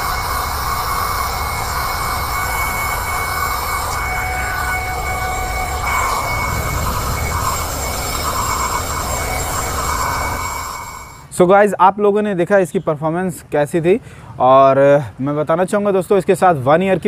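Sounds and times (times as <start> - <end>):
handheld vacuum cleaner whining: 0.0 - 11.3.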